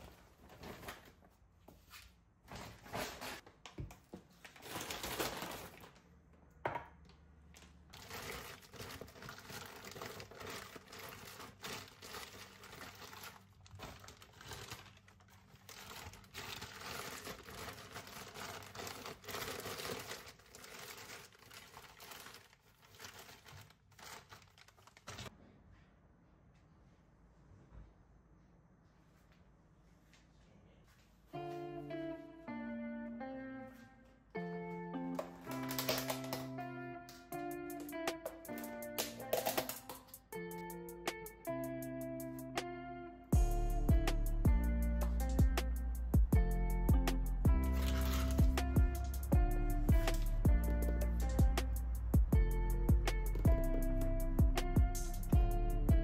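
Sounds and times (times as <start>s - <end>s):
plastic bags rustling: 4.3s - 6.1s, 7.9s - 25.3s, 35.2s - 36.6s, 47.7s - 48.4s.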